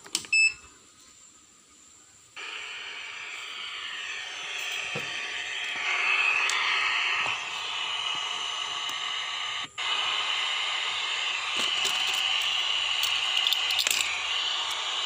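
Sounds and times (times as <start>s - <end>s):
radio static hissing: 2.4s - 15.0s
flash drive clicks and rattles: 11.5s - 14.9s.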